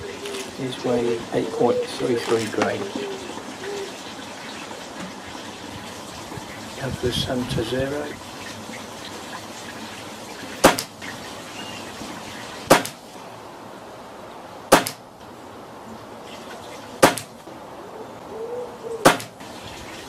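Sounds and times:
air rifle shots: 0:10.6 - 0:10.9, 0:12.7 - 0:13.0, 0:14.7 - 0:15.0, 0:17.0 - 0:17.3, 0:19.0 - 0:19.4.

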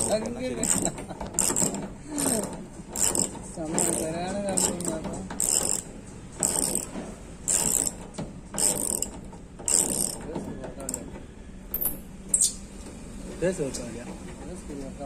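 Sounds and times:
hand tool rasping strokes: 0:00.0 - 0:08.0, 0:08.6 - 0:11.0.

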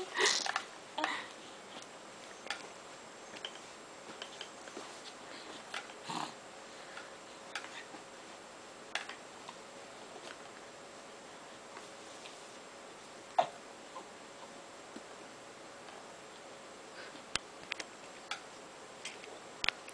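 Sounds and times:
baby grunting and sniffing: 0:06.0 - 0:06.4.

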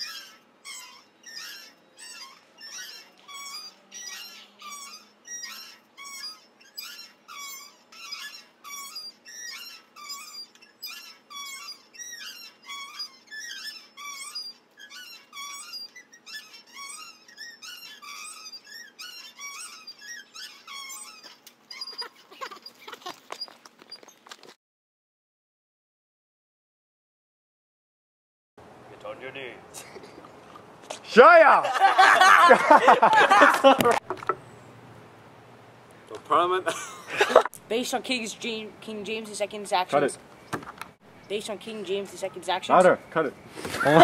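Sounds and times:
swing chain squeaking: 0:00.0 - 0:24.6, 0:36.8 - 0:43.2.

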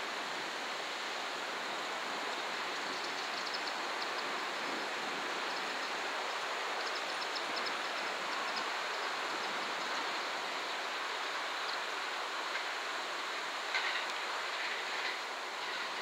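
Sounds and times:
faint high ticks: 0:02.8 - 0:04.3, 0:06.8 - 0:10.0.

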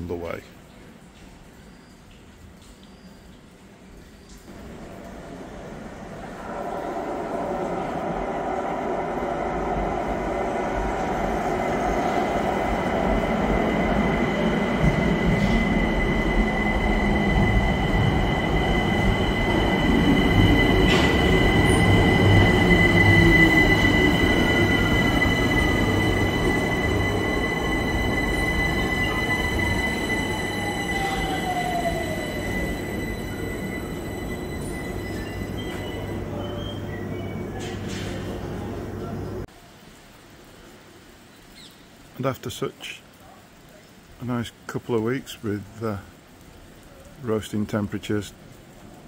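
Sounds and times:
train running rumble: 0:04.5 - 0:39.5
high brake squeal: 0:14.9 - 0:38.3.

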